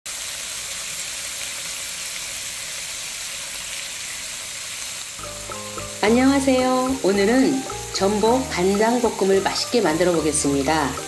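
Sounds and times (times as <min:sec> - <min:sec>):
food sizzling in frying pan: 0:00.1 - 0:11.0
soft music: 0:05.2 - 0:11.0.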